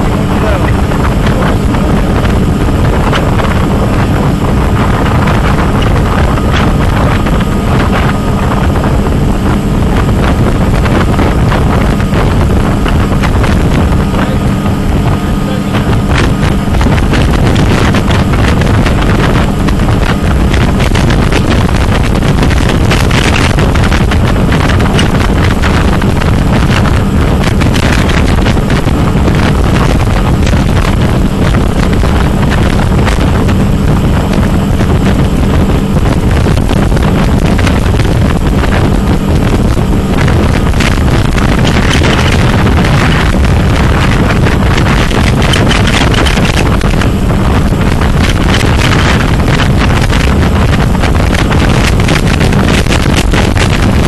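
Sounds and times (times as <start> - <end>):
churning wake rushing: 0.0 - 54.0
motorboat engine drone: 0.0 - 54.0
wind buffeting microphone: 0.0 - 54.0.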